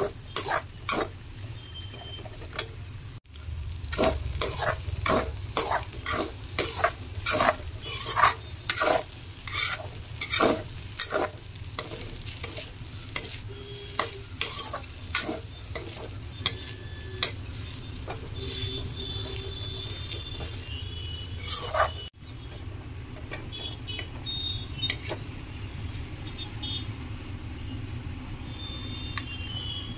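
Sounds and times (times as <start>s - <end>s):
spatula scraping metal pan: 0.0s - 1.2s, 3.9s - 20.7s, 21.4s - 22.1s
light sizzle: 0.0s - 25.4s.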